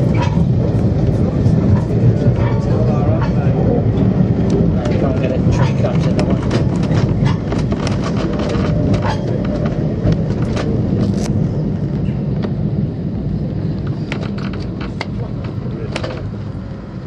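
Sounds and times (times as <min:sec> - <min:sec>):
tram running on track: 0:00.0 - 0:17.0
clicks and rattles: 0:04.5 - 0:11.4.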